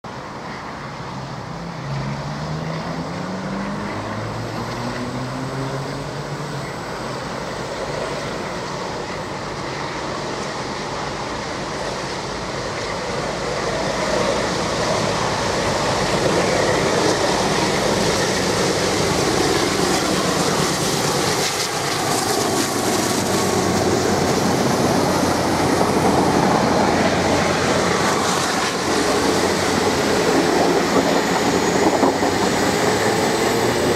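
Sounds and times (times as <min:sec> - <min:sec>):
diesel locomotive engine working hard: 0:00.1 - 0:33.9
carriages rumbling and clattering by: 0:12.3 - 0:33.9.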